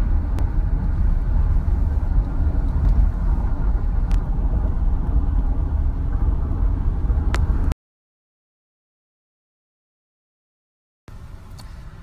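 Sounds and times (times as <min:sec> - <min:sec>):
car interior engine and road rumble: 0:00.0 - 0:07.8, 0:11.1 - 0:12.0.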